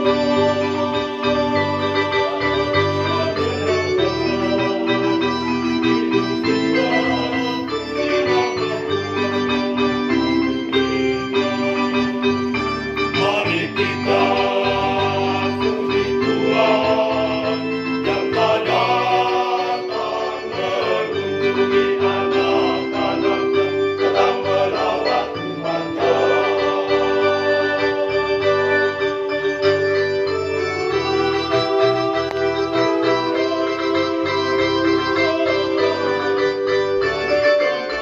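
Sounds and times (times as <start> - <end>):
choir singing a hymn: 0.0 - 38.0
electronic organ chords: 0.0 - 38.0.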